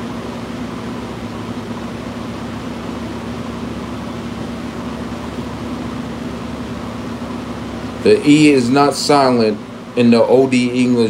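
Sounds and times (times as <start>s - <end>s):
fan running: 0.0s - 11.0s.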